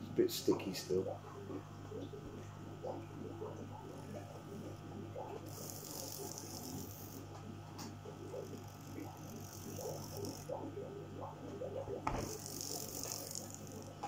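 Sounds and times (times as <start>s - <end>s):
small motor and gears rattling: 3.7s - 10.8s, 11.6s - 14.0s.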